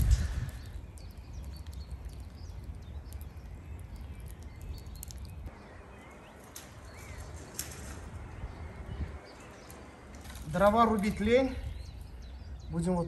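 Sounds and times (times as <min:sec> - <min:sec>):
bird chirping: 0:00.0 - 0:13.0.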